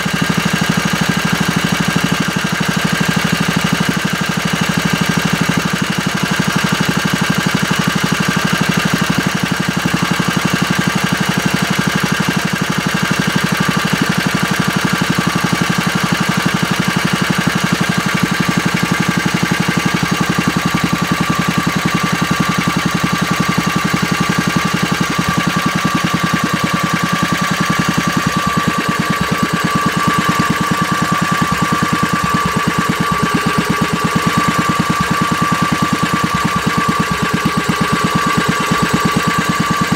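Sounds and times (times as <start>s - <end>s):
engine idling: 0.0s - 39.9s
thin engine whine: 14.5s - 39.9s.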